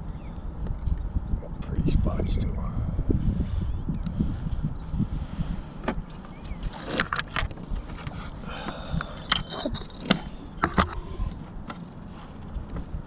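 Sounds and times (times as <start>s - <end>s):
wind buffeting microphone: 0.0s - 11.7s.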